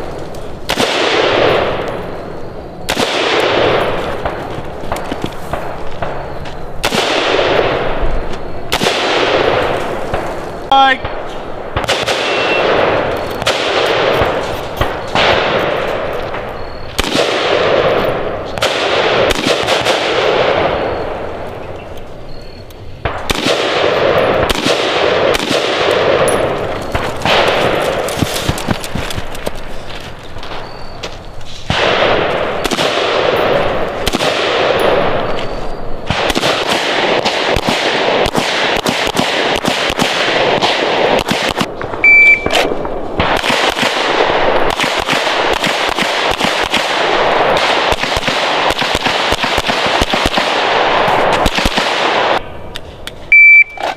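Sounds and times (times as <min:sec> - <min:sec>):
rapid gunfire echoing: 0:00.0 - 0:01.9, 0:02.9 - 0:21.1, 0:23.0 - 0:29.3, 0:31.7 - 0:35.3, 0:36.0 - 0:52.4
metallic pings of steel targets: 0:25.9 - 0:27.4.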